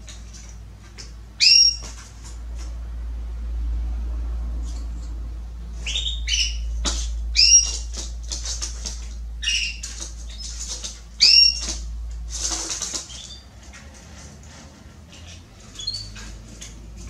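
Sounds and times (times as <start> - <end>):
canary call notes: 1.4 - 2.0, 5.8 - 8.0
quick clicks and rustles: 6.8 - 17.0.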